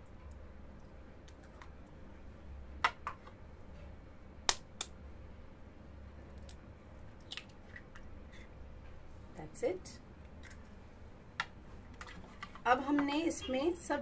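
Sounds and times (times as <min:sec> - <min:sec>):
eggshell cracking: 0:06.4 - 0:08.0.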